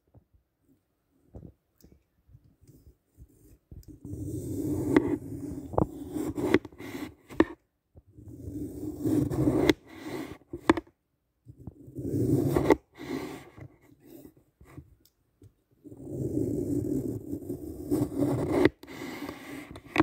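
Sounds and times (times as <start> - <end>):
knife slicing through floral foam: 8.4 - 10.4, 16.0 - 20.0.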